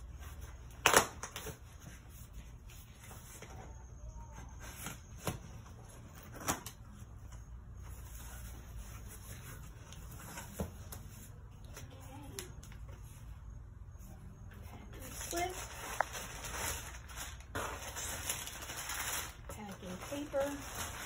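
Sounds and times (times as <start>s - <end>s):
cardboard and paper rustling: 0.0s - 13.4s, 14.6s - 21.0s
low steady hum: 0.0s - 21.0s.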